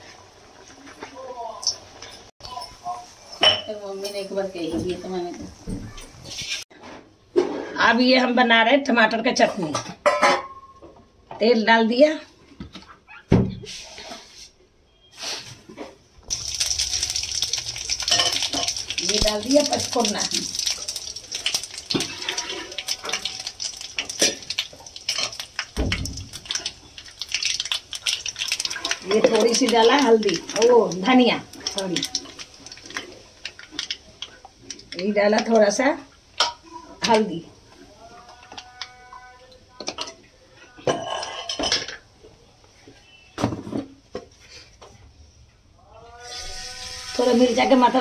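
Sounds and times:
kitchen utensils clattering: 1.6s - 6.7s, 9.4s - 10.8s, 16.4s - 34.0s, 40.8s - 42.0s
seeds sizzling in hot oil: 16.2s - 37.3s, 46.1s - 48.0s.

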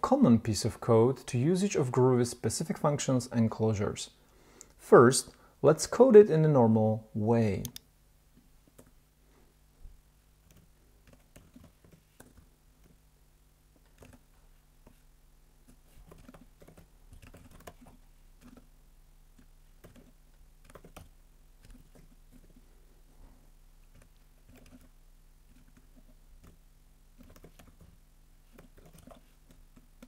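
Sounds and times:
faint low hum: 0.0s - 30.0s
keyboard typing: 10.4s - 13.0s, 13.8s - 15.0s, 15.6s - 18.7s, 19.3s - 22.6s, 23.8s - 26.6s, 27.2s - 30.0s.

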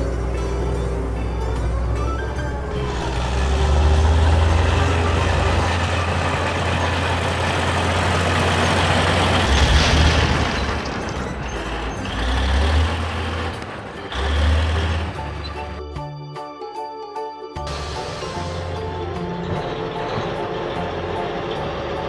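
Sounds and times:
deep engine rumble: 0.0s - 16.1s
dense clattering of rocks: 9.0s - 11.9s.

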